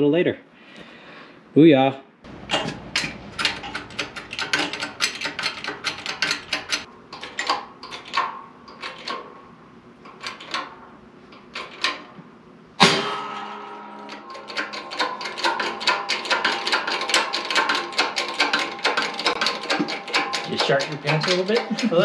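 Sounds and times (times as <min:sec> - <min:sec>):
pump handle clicking: 0:02.3 - 0:09.3, 0:14.1 - 0:22.0
loud bang with metallic ringing: 0:12.8 - 0:15.3.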